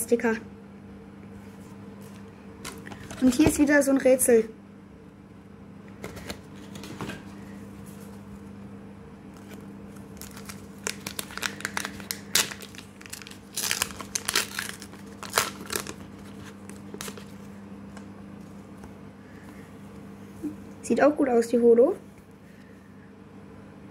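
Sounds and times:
wrapper crinkling and tearing: 0:09.3 - 0:17.5.

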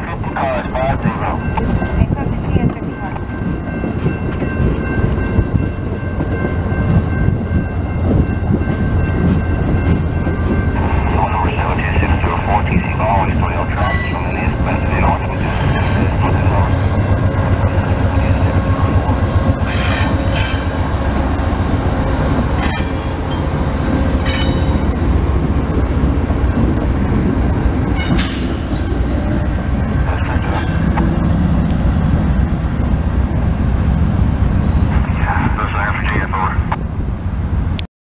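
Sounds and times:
train rumbling on rails: 0:00.0 - 0:37.9
train wheel squeal: 0:13.8 - 0:14.3, 0:15.3 - 0:16.2, 0:19.6 - 0:20.8, 0:27.9 - 0:28.4.

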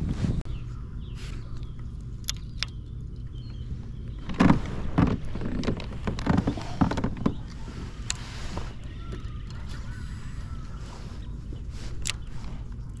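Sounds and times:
sharp clicks: 0:01.6 - 0:03.2.

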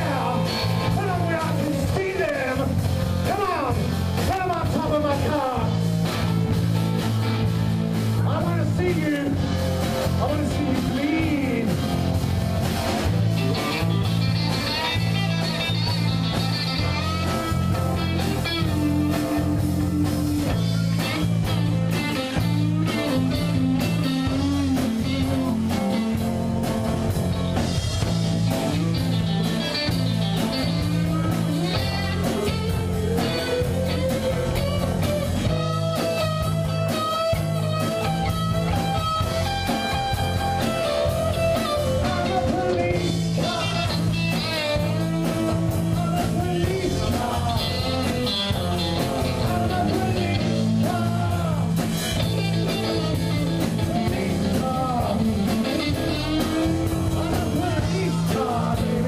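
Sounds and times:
bass guitar: 0:00.0 - 0:59.0
drum kit: 0:00.0 - 0:59.0
electric guitars: 0:00.0 - 0:59.0.

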